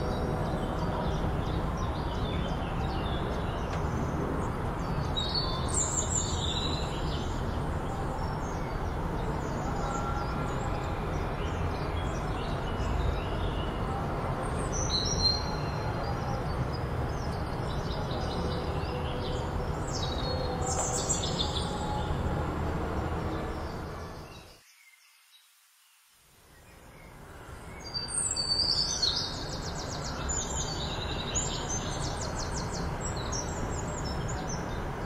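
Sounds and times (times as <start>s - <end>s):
birds chirping: 14.6s - 24.9s.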